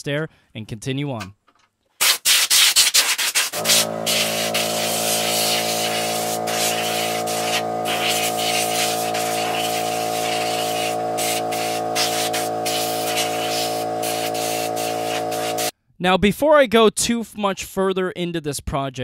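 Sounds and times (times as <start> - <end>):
compressed air blasts hissing: 2.0 - 15.7
steady hum: 3.6 - 15.7.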